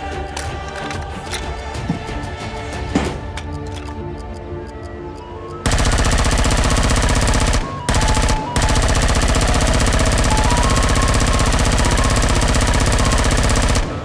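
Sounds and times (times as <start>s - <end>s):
background music: 0.0s - 14.0s
rapid automatic blaster fire: 5.6s - 14.0s.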